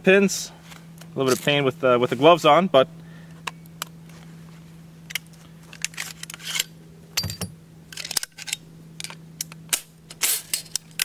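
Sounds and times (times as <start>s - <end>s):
metal clicks of rifle parts: 5.1s - 11.0s.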